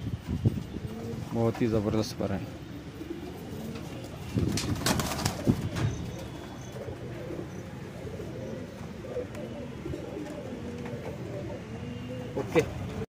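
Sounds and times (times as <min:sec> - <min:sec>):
pigeons cooing: 0:00.4 - 0:13.0
wings fluttering: 0:03.6 - 0:06.9.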